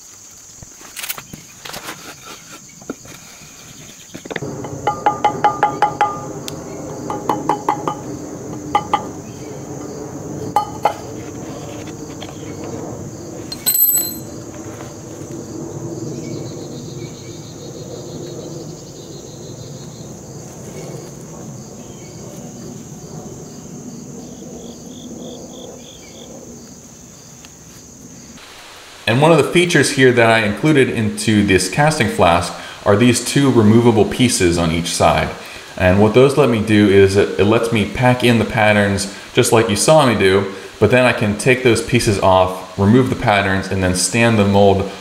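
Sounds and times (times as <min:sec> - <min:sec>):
insect chirring: 0:00.0 - 0:36.8.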